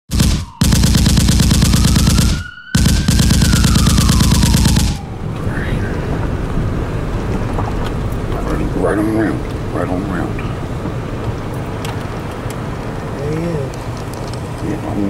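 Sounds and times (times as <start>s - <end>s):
rapid-fire rattling: 0.1s - 5.2s
low steady rumble: 0.9s - 15.0s
whistling tone gliding: 1.6s - 5.5s.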